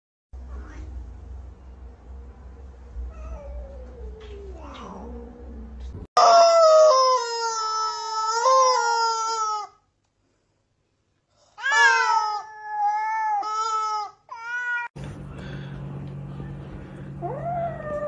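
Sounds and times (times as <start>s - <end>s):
faint low hum: 0.4s - 6.1s, 15.0s - 18.0s.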